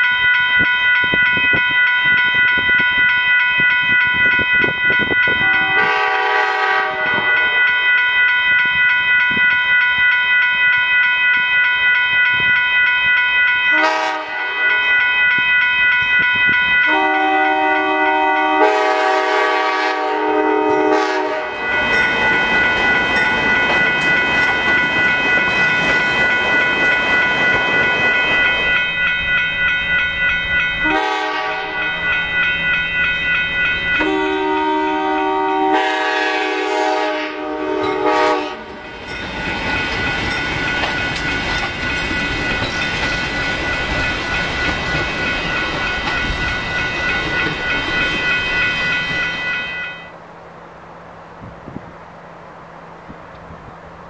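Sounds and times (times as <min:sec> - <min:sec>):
crossing warning bell ringing: 0:00.0 - 0:51.4
locomotive air horn blasts: 0:05.4 - 0:07.6, 0:13.7 - 0:14.8, 0:16.9 - 0:21.6, 0:30.8 - 0:31.9, 0:34.0 - 0:38.7
train wheels clicking over rails: 0:21.0 - 0:30.9, 0:38.6 - 0:49.5.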